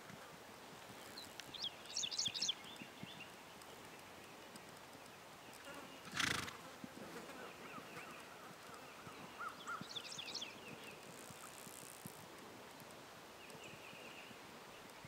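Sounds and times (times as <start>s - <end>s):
horse hooves on grass: 0.0s - 15.0s
birds chirping: 1.0s - 6.5s, 7.2s - 11.6s.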